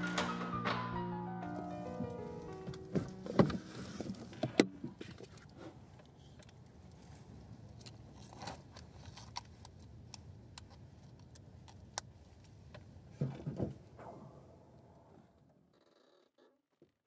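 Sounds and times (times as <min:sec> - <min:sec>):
rustle and shuffle: 0:01.6 - 0:14.0.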